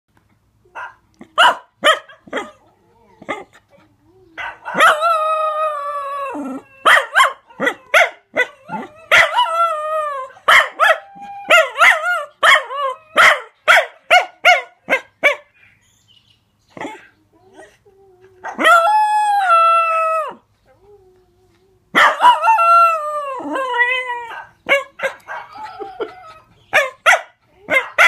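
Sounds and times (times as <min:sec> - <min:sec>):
dog howling: 0:04.1 - 0:13.3, 0:17.9 - 0:26.6
dog woo calls: 0:18.4 - 0:26.9.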